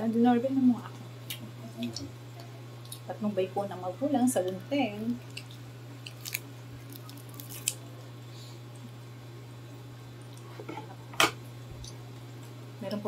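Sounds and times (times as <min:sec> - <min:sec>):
steady low hum: 0:00.0 - 0:13.0
scissors snipping crispy food: 0:05.3 - 0:07.8.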